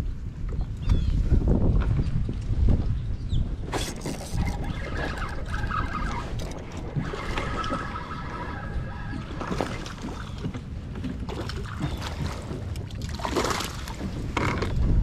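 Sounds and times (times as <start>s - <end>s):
wind rumble on microphone: 0.0s - 15.0s
water splashing: 3.6s - 14.5s
fishing reel cranking: 3.8s - 8.9s.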